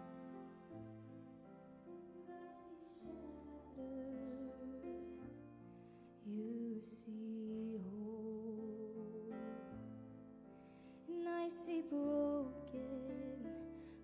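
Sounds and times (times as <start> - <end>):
orchestra playing slow sustained chords: 0.0 - 5.0.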